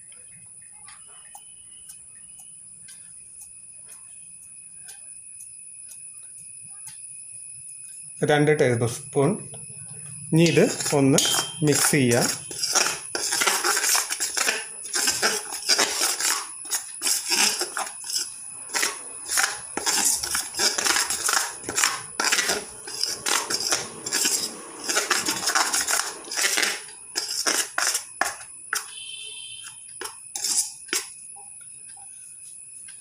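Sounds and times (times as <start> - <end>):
metal spoon scraping steel bowl: 10.3 - 31.2.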